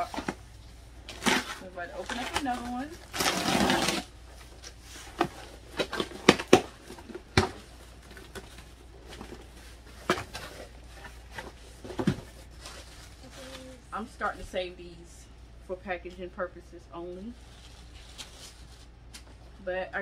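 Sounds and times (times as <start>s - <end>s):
cardboard box being unpacked: 1.1s - 13.8s.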